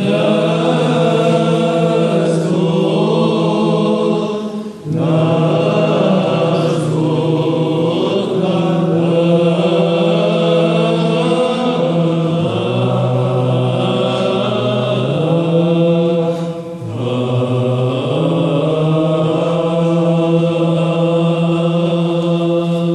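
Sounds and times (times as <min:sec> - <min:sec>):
held vocal drone: 0:00.0 - 0:22.9
men chanting: 0:00.0 - 0:22.9.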